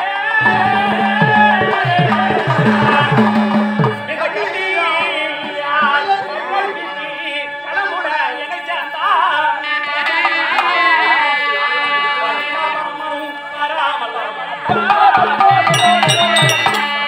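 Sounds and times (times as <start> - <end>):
hand drum strokes: 0.4 - 4.2, 14.7 - 17.0
steady held notes: 0.4 - 7.0, 14.7 - 17.0
person singing: 0.4 - 7.7, 14.6 - 17.0.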